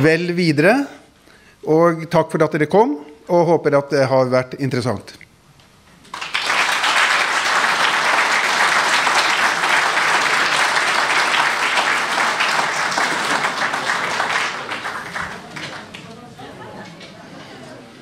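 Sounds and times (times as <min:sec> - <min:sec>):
audience applauding: 0:06.0 - 0:16.6.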